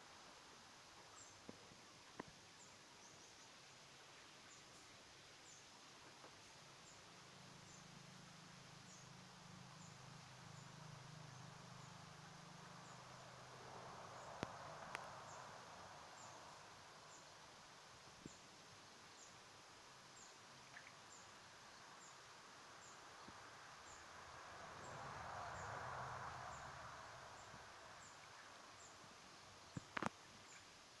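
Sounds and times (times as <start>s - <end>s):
soft rushing swell: 22.8s - 29.6s.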